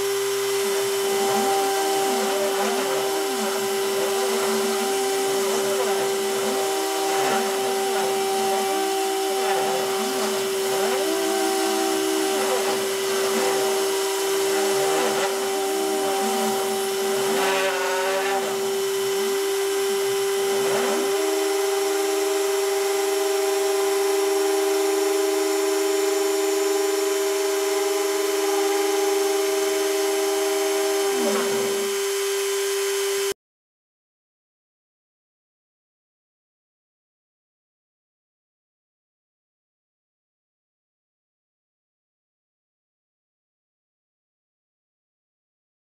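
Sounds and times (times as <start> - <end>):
stepper motors whining: 0.0 - 33.3
router spindle high whine: 0.0 - 33.4.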